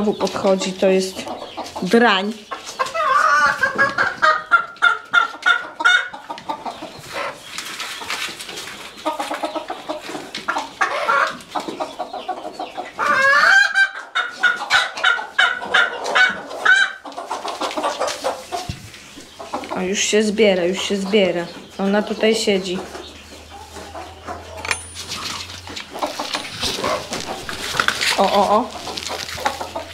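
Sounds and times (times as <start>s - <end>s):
chickens clucking and squawking: 0.0s - 29.9s.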